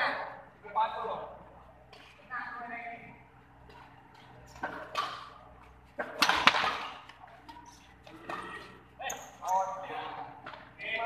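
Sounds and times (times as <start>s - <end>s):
rackets hitting shuttlecock: 3.7s - 9.4s.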